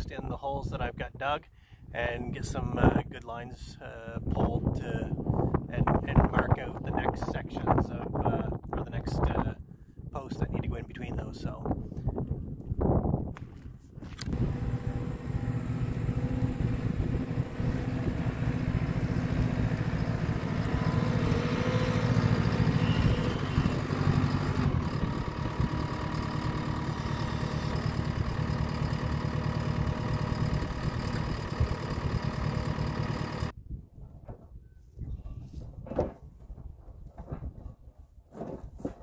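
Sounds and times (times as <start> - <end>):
diesel engine running: 14.1 - 33.5.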